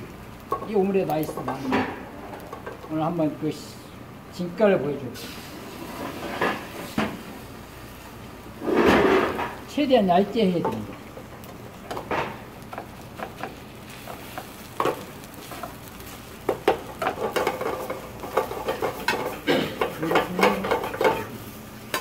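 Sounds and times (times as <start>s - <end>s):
light sizzle: 0.0s - 22.0s
spoon scraping frying pan: 13.3s - 22.0s.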